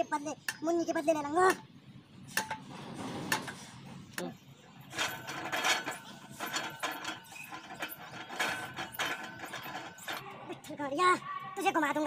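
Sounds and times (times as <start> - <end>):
gym machines rattling and squeaking: 4.7 - 12.0.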